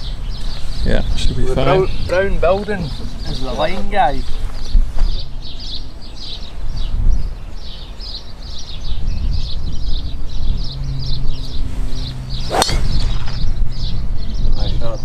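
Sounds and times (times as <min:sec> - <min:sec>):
low wind rumble: 0:00.0 - 0:15.0
small birds chirping: 0:00.0 - 0:15.0
golf club striking ball: 0:12.3 - 0:13.6.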